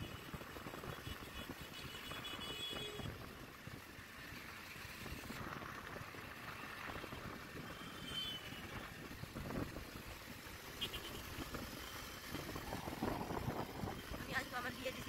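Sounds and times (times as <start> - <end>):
motorcycle road noise rumble: 0.0 - 15.0
wind rushing over microphone: 8.5 - 10.6, 11.2 - 14.7.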